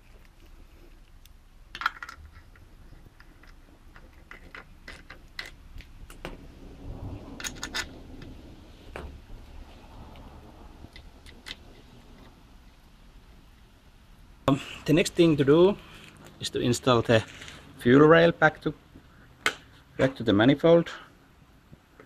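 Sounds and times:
metallic clicks of tool and bolts: 1.2s - 6.3s.

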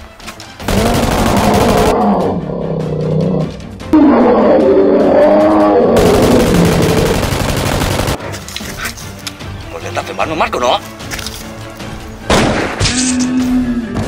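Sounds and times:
dinosaur roar: 0.7s - 7.1s.

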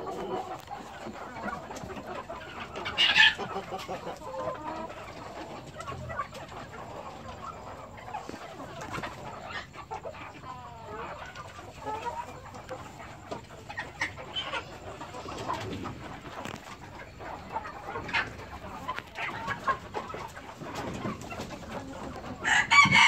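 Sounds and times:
chickens clucking and calling: 0.0s - 23.0s.

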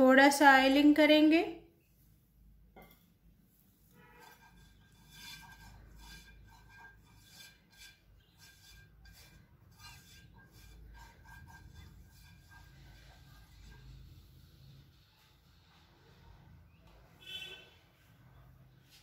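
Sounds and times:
pastry brush rubbing a pan: 3.5s - 16.7s.

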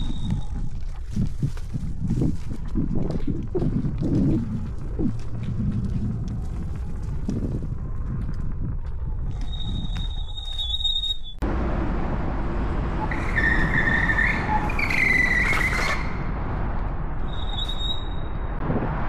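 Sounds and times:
tyres rumbling on rough ground: 0.0s - 19.0s
brakes squealing: 9.3s - 18.6s.

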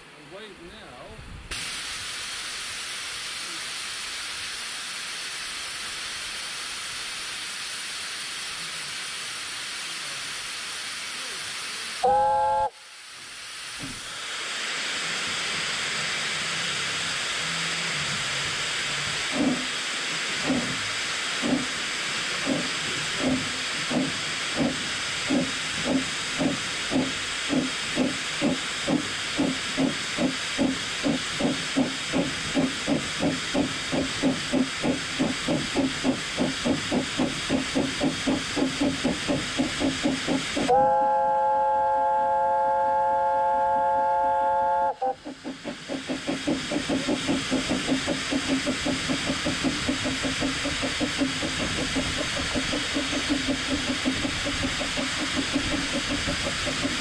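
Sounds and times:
steam locomotive hissing: 0.0s - 57.0s
steam whistle blast: 12.0s - 12.9s, 40.7s - 45.2s
locomotive exhaust chuffs: 13.7s - 57.0s.

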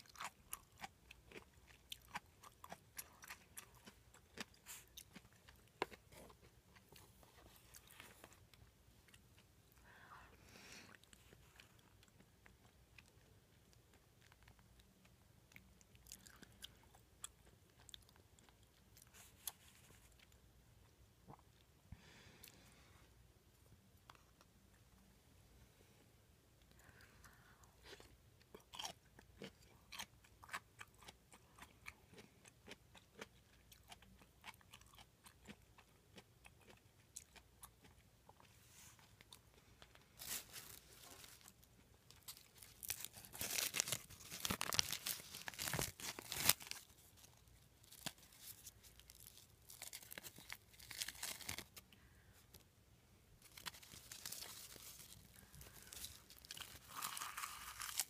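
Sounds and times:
crunching and chewing: 0.0s - 9.9s, 10.9s - 21.8s, 26.6s - 52.7s, 53.4s - 58.0s.

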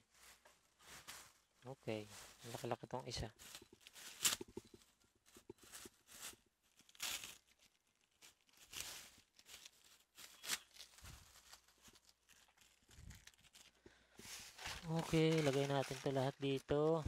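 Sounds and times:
packing tape tearing and crinkling: 3.4s - 4.7s, 5.3s - 17.0s.

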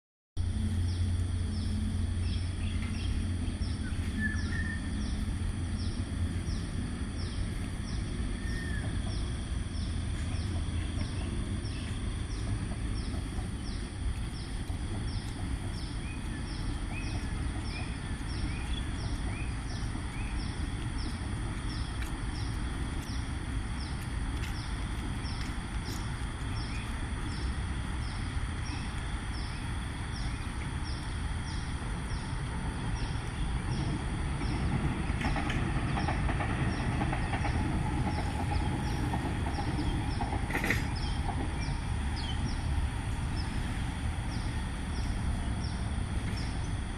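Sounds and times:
low rumble: 0.4s - 46.9s.

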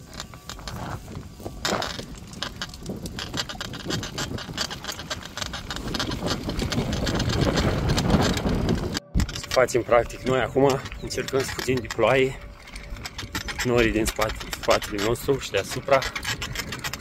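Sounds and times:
bicycle crunching over dirt: 0.0s - 17.0s
wind rumble on microphone: 0.0s - 17.0s.

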